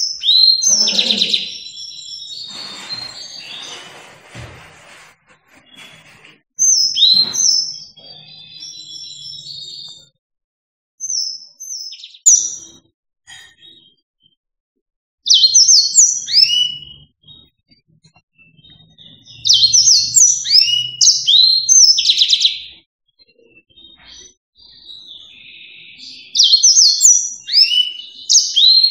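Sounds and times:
canary twittering: 0:00.0 - 0:03.9, 0:05.6 - 0:09.9, 0:18.4 - 0:22.8, 0:24.0 - 0:28.9.

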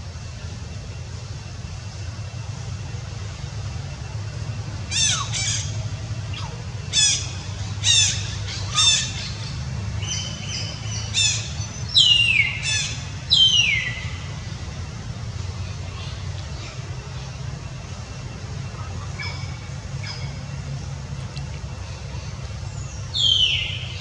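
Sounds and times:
steady low rumble: 0:00.0 - 0:24.0
infant monkey high-pitched calls: 0:04.8 - 0:14.5, 0:15.2 - 0:20.9.

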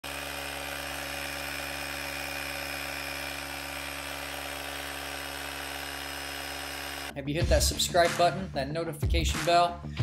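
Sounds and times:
small electric compressor running: 0:00.0 - 0:07.1.

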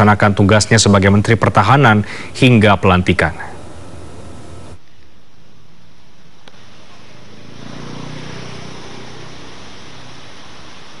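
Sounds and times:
traffic noise: 0:06.0 - 0:11.0
vehicle engine passing: 0:06.6 - 0:11.0.

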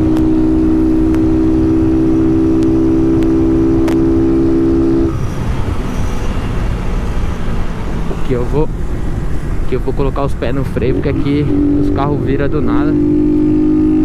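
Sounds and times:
motorcycle engine at high revs: 0:00.0 - 0:05.1, 0:10.8 - 0:14.0
wind and road noise: 0:00.0 - 0:14.0.

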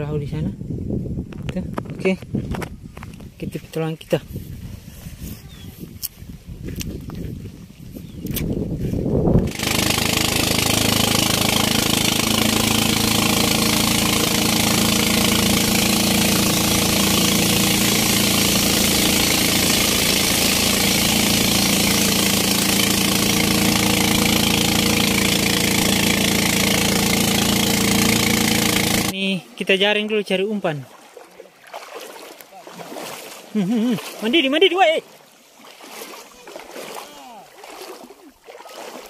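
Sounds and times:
rushing water and air: 0:04.1 - 0:39.0
motorboat engine running: 0:09.2 - 0:29.2.

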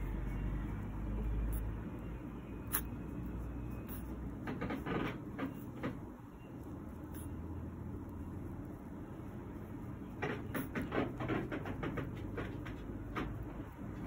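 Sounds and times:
low steady rumble: 0:00.0 - 0:10.3.

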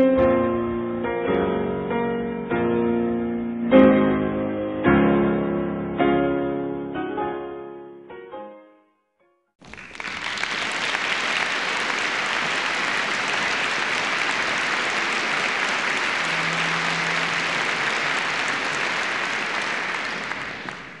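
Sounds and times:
piano notes: 0:00.0 - 0:09.0, 0:14.4 - 0:21.0
audience applause: 0:09.6 - 0:21.0.

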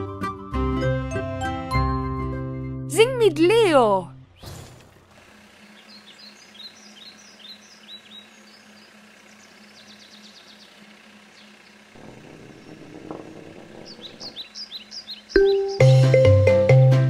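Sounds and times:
small birds chirping: 0:05.6 - 0:16.0.

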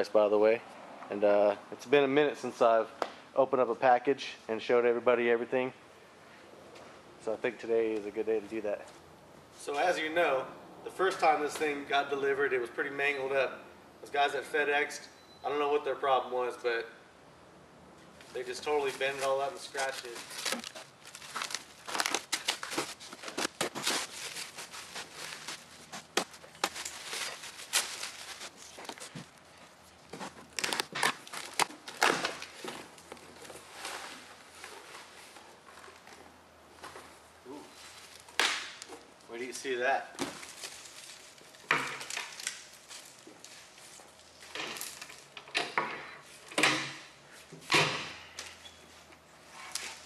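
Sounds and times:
clatters and rustles: 0:18.1 - 0:39.2, 0:40.2 - 0:46.8
stretch wrap crinkling and tearing: 0:18.7 - 0:29.7, 0:30.4 - 0:32.6, 0:40.4 - 0:45.3
plastic wrap being pulled off: 0:18.9 - 0:25.9
plastic wrap snapping: 0:19.1 - 0:29.4, 0:30.4 - 0:32.6, 0:40.3 - 0:43.2.

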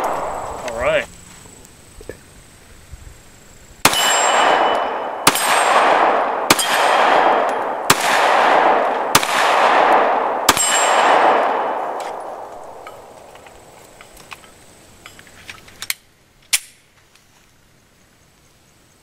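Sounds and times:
pistol shots with echo: 0:00.0 - 0:00.6, 0:03.8 - 0:13.2.

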